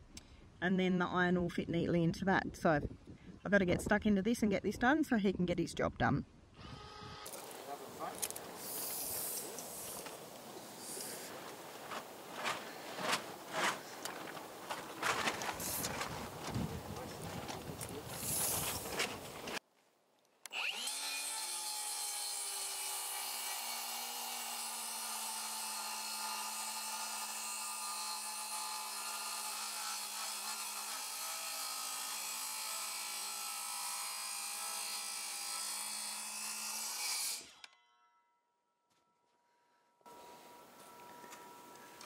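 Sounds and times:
circular saw cutting timber: 6.6 - 19.6, 20.5 - 37.7.

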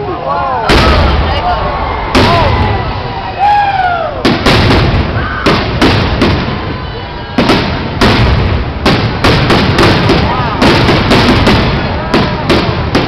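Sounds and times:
rumbling echo: 0.6 - 13.0
firework shells bursting: 4.2 - 13.0.

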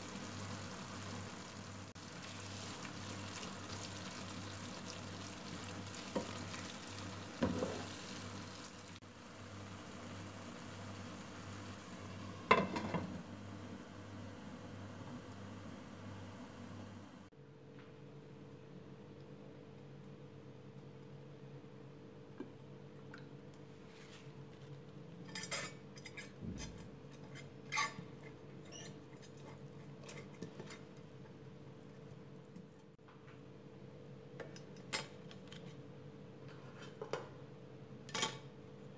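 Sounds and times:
meat sizzling in a frying pan: 0.0 - 13.2.

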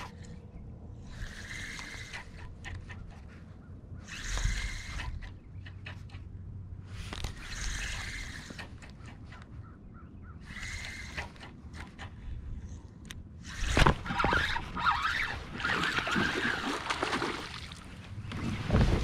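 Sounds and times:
fishing reel clicking: 1.1 - 2.5, 4.1 - 5.4, 7.1 - 8.9, 10.4 - 11.9.

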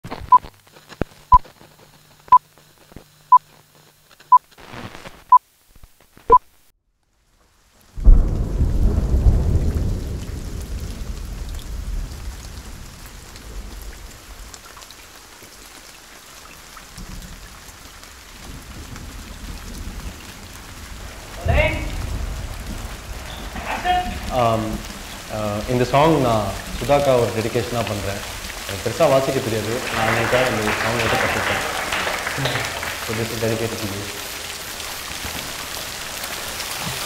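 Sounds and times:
steady rain: 0.0 - 37.0
thunderclap rumbling: 8.0 - 14.6, 16.9 - 37.0.

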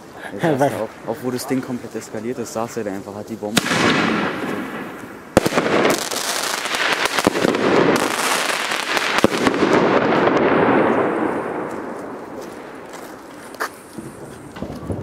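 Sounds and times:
fireworks bangs: 3.4 - 15.0.

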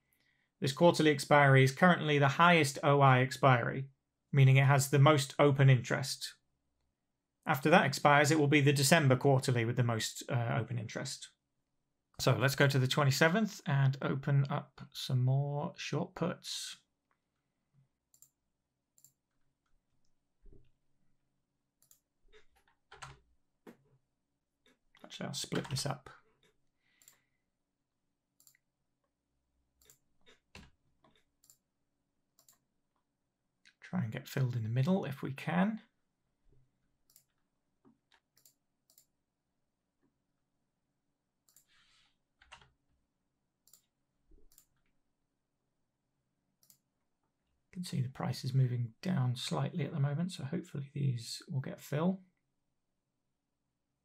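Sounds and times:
computer mouse clicks: 18.1 - 18.4, 19.0 - 19.2, 21.8 - 23.8, 24.7 - 27.2, 28.4 - 28.7, 29.8 - 31.6, 32.4 - 32.6, 37.1 - 37.4, 38.1 - 39.1, 41.4 - 42.8, 43.6 - 44.9, 46.6 - 46.9.

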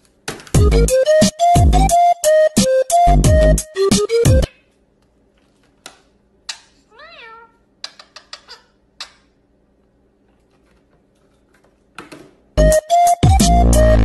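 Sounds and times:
loud music: 0.6 - 4.5, 12.6 - 14.0.

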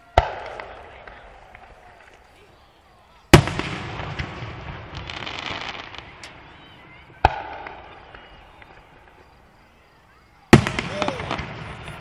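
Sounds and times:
fireworks crackling: 0.0 - 12.0
firework shell bang: 7.2 - 8.2.

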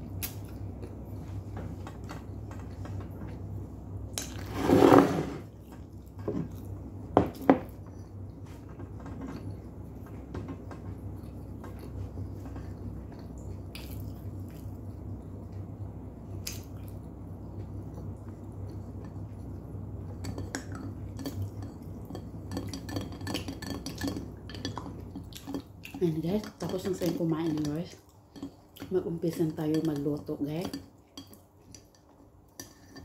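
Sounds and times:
steady low hum: 0.0 - 33.0
tableware scraping on wood: 4.4 - 5.5
plastic spoon stirring in glass jar: 20.2 - 33.0.

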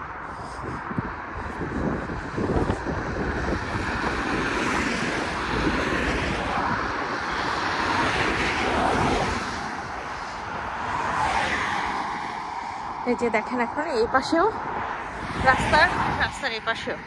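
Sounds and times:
road traffic passing: 0.0 - 17.0.

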